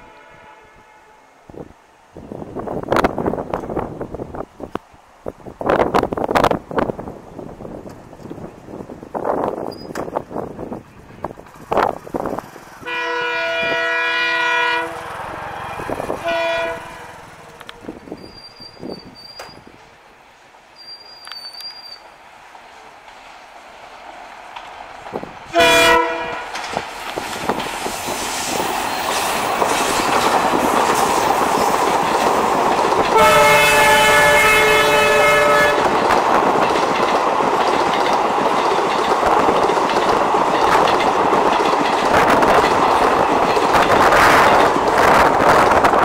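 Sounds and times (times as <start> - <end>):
locomotive horn blast: 0.0 - 1.4, 12.8 - 17.8, 25.5 - 26.6, 33.1 - 36.0
train noise approaching: 0.0 - 46.0
wheels clattering over rail joints: 9.5 - 13.0, 24.0 - 46.0.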